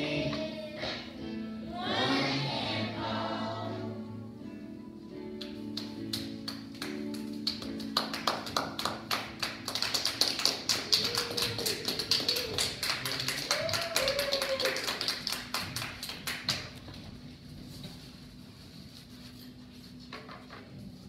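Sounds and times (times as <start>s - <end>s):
children's choir singing: 0.0s - 4.4s
small group clapping: 5.4s - 17.0s.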